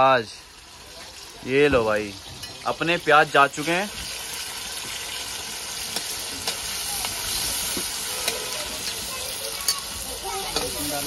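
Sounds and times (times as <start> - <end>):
onions sizzling in hot oil: 0.0 - 11.0
metal spatula scraping pan: 7.3 - 9.9.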